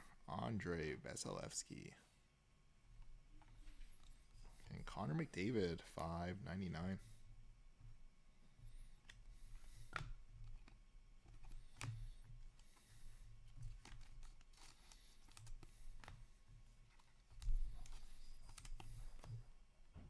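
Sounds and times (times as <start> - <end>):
trading cards clicking and rustling: 9.8 - 19.5.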